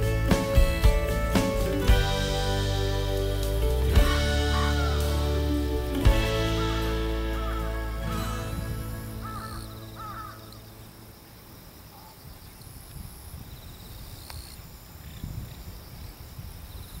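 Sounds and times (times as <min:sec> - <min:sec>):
background music: 0:00.0 - 0:11.2
crow cawing: 0:09.2 - 0:10.6.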